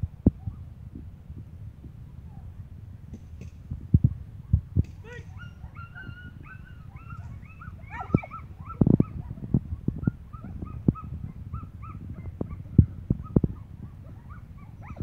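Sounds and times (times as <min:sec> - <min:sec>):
sharp low thumps: 0:02.7 - 0:05.3
dog whining and yipping: 0:05.2 - 0:15.0.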